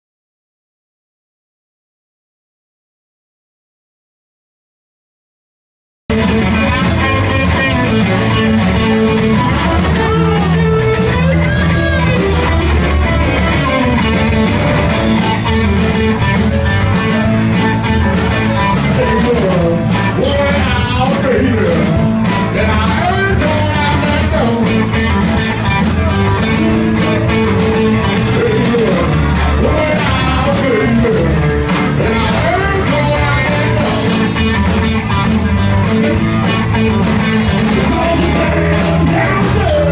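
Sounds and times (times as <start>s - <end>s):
live rock band playing: 6.1s - 39.9s
man singing: 6.2s - 12.5s, 18.4s - 35.0s, 36.0s - 39.9s.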